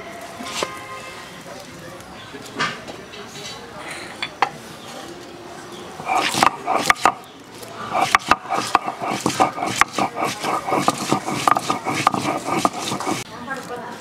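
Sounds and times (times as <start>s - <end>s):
stone roller knocking and grinding: 6.0s - 7.2s, 7.9s - 13.2s.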